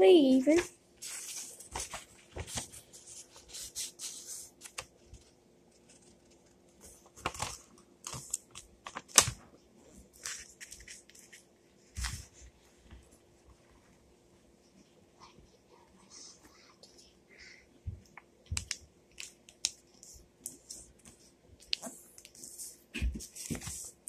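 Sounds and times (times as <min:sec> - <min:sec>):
paper rustling on a table: 0:00.5 - 0:09.4, 0:10.0 - 0:13.1, 0:22.3 - 0:24.0.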